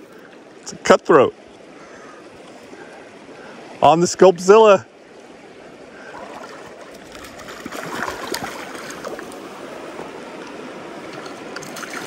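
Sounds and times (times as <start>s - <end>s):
stream running over gravel: 2.4s - 12.0s
short sharp splashes: 6.1s - 9.4s, 11.1s - 12.0s.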